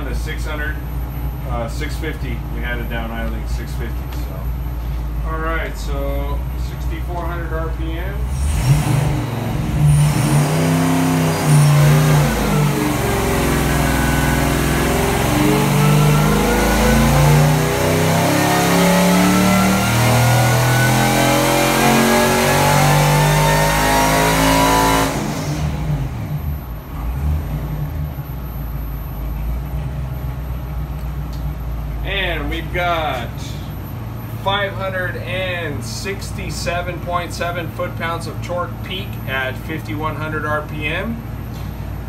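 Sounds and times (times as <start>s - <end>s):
supercharged engine revving: 8.1s - 28.3s.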